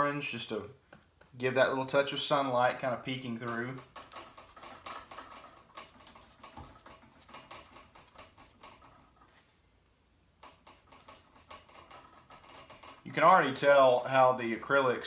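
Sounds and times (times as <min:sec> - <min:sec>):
paintbrush scratching on canvas: 0:03.1 - 0:09.6, 0:10.4 - 0:13.9.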